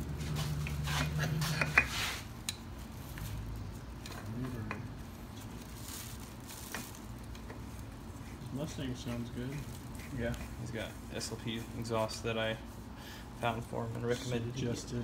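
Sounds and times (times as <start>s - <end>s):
plastic bag rustling: 2.1s - 14.1s.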